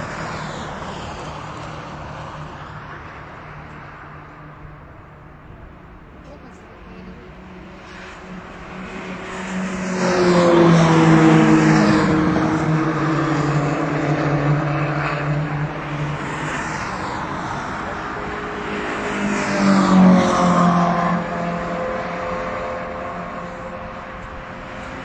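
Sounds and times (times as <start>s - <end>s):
race car engine passing: 6.7s - 25.0s.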